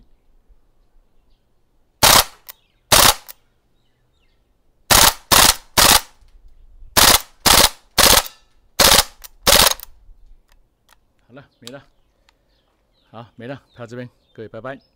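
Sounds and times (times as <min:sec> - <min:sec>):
airsoft gun firing bursts: 0:02.0 - 0:03.3, 0:04.9 - 0:06.2, 0:07.0 - 0:09.8.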